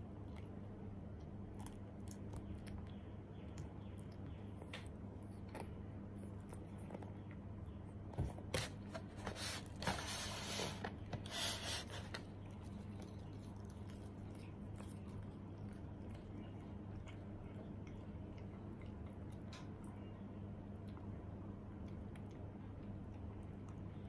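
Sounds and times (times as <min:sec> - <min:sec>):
steady low hum: 0:00.0 - 0:24.0
rustling and crackling: 0:04.6 - 0:17.8
cat chewing grass: 0:08.8 - 0:24.0.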